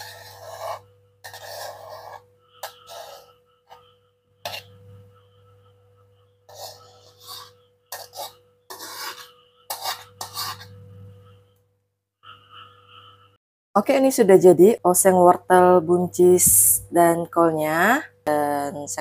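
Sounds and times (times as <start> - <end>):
metal spatula scraping wok: 0.0 - 5.0, 6.4 - 11.4
faint hum: 0.0 - 13.4.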